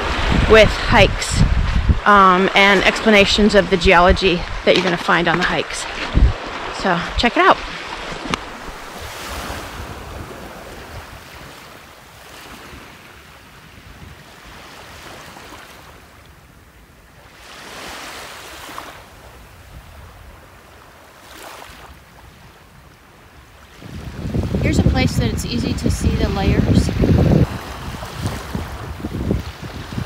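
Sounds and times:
wind rumbling on microphone: 0.0s - 16.8s, 21.9s - 30.0s
small waves washing onto beach: 0.0s - 30.0s.

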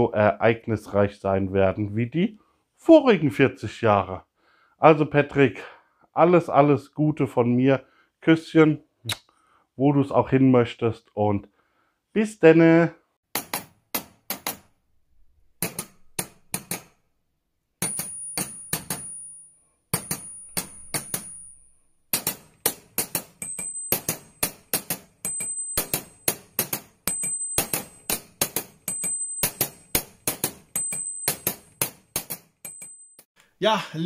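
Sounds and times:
sharp metallic clinks with ringing: 17.8s - 33.3s.

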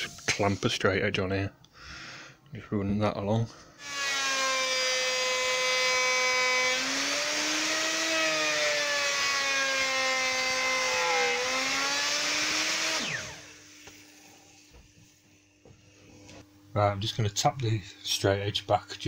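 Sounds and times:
router winding down: 3.8s - 14.2s
router motor whining: 3.8s - 14.7s.

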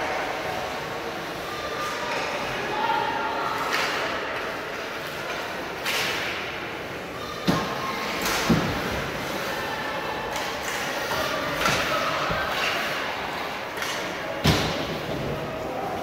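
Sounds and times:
murmur of voices echoing: 0.0s - 16.0s.

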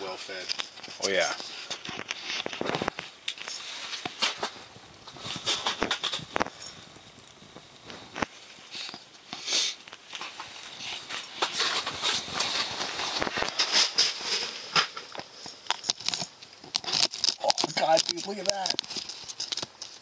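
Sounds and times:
fishing rod rustling and clicking: 0.3s - 20.0s.

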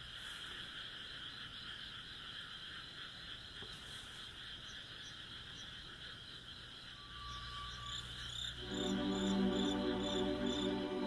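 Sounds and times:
frogs calling: 0.0s - 11.0s.

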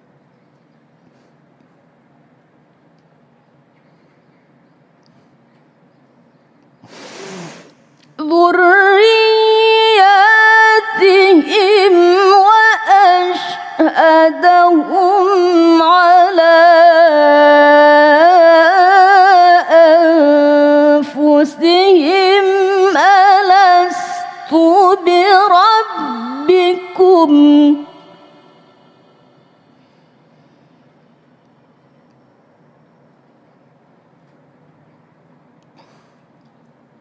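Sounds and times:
woman reciting melodically: 8.2s - 29.2s.

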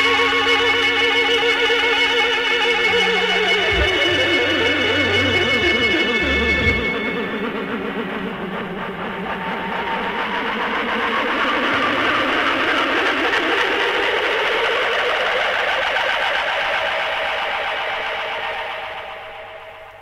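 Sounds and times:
noisy wavering music: 0.0s - 20.0s.

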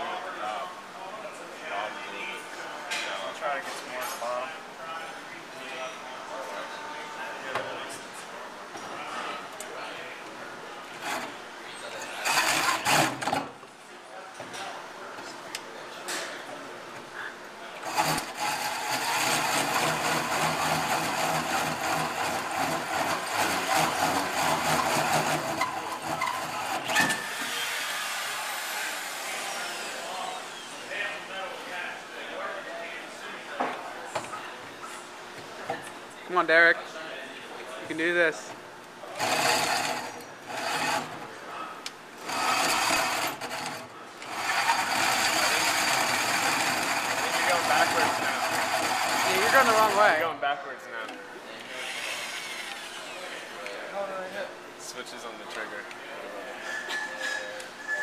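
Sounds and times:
hole saw grinding through steel: 12.1s - 13.4s, 17.8s - 30.0s, 39.2s - 41.2s, 42.2s - 50.2s.

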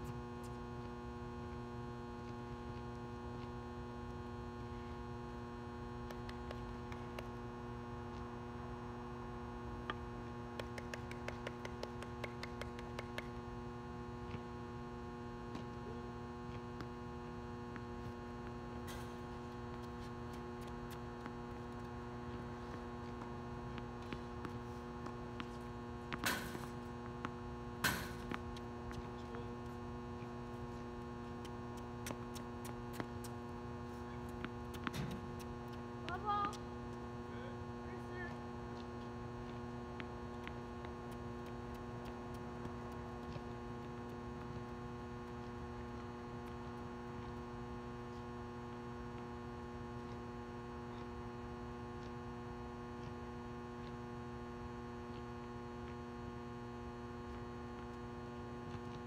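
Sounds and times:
electrical mains hum: 0.0s - 59.0s
tennis ball hits: 27.8s - 28.4s.

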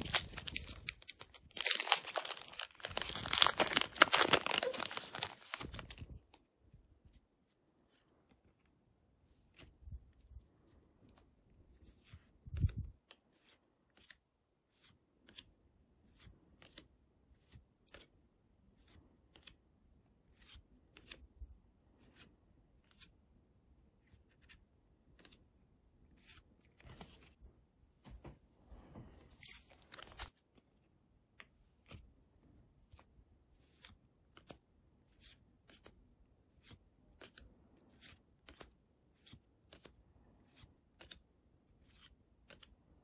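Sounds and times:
card rustles: 0.0s - 6.5s, 29.2s - 30.6s.

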